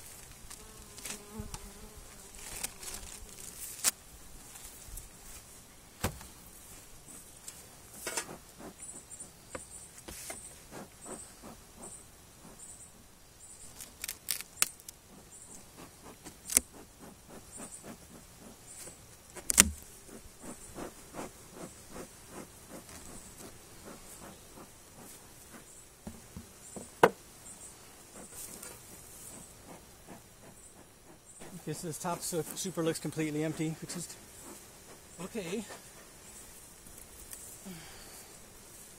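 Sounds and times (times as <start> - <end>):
knocks and clicks on wooden hive: 19.4 - 19.8, 26.0 - 27.2.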